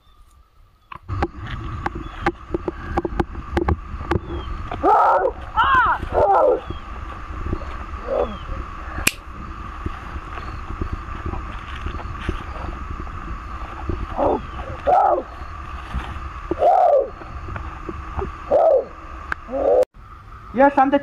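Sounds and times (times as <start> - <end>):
wind rumble on microphone: 0.7 - 21.0
sharp click: 9.0 - 9.2.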